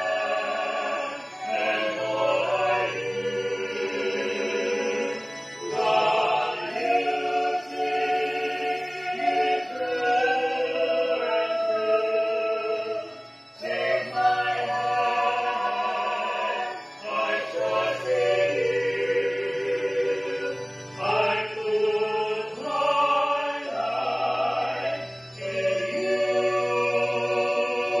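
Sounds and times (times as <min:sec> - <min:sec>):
vocal group singing in harmony: 0:00.0 - 0:28.0.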